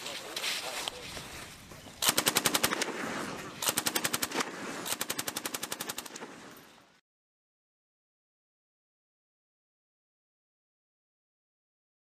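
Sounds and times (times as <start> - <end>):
machine gun automatic fire: 2.0 - 6.5.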